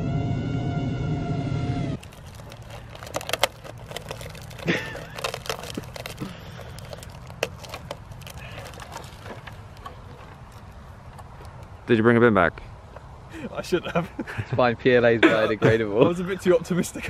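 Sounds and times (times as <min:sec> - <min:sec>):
plastic crackling and clicking: 0:02.0 - 0:11.7.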